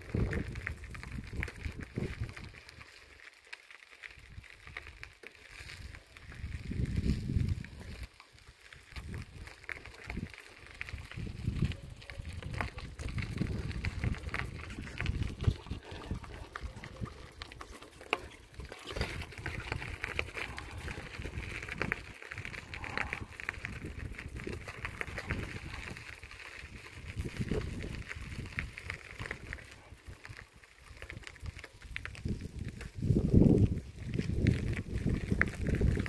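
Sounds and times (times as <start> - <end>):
wind buffeting microphone: 0.0 - 2.6, 6.2 - 8.1, 8.9 - 17.8, 18.5 - 30.4, 31.0 - 36.0.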